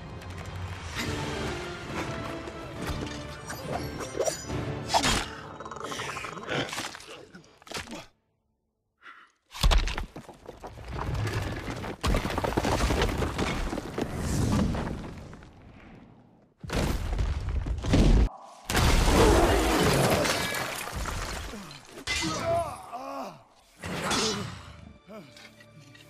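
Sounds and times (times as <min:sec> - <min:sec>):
orchestral film score: 0:00.0 - 0:06.2, 0:21.5 - 0:26.0
stone tower crashing and rumbling: 0:10.3 - 0:15.8, 0:16.6 - 0:21.9.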